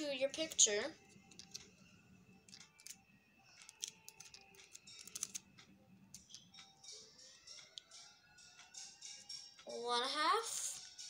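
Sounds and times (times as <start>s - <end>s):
scattered ticks: 2.5s - 3.0s, 3.6s - 9.7s
tape and paper crinkling: 3.6s - 5.4s.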